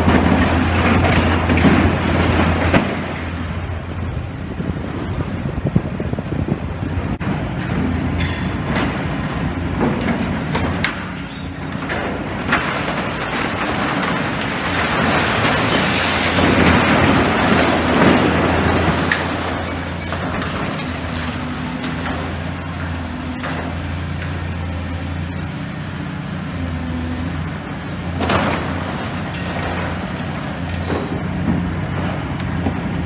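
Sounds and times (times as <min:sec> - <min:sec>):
excavator diesel engine running: 0:00.0 - 0:33.0
metal and concrete clanks: 0:07.5 - 0:09.1.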